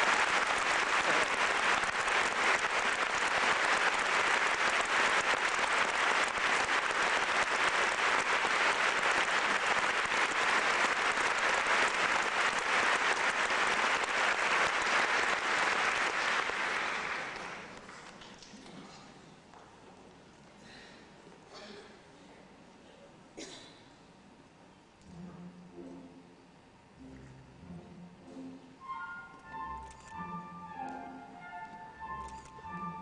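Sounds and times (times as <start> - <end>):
audience applauding: 0.0 - 18.4.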